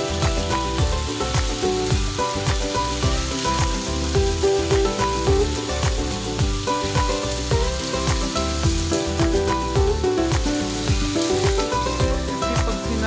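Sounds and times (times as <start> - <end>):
background music with beat: 0.0 - 13.0
chicken sizzling in oil: 0.0 - 13.0.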